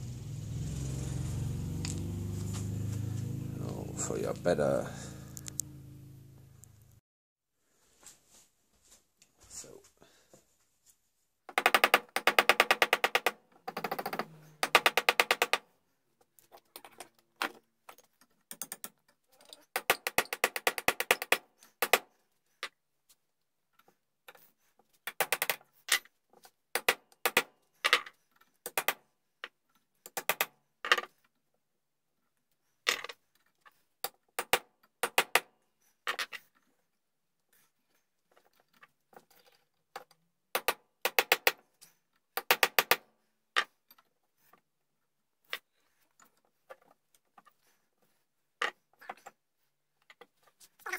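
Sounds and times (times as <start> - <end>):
hand tool rapid clicking: 11.5 - 15.6, 19.7 - 22.1.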